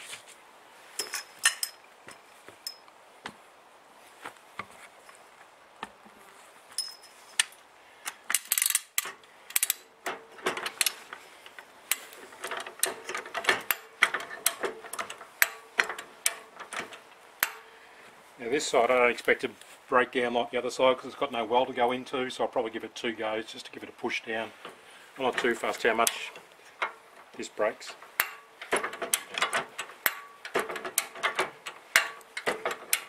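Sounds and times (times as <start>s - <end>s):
faint metallic ringing: 1.0s - 2.9s, 6.7s - 7.4s
jack ratchet clicking and clanking: 8.3s - 17.7s, 24.6s - 33.0s.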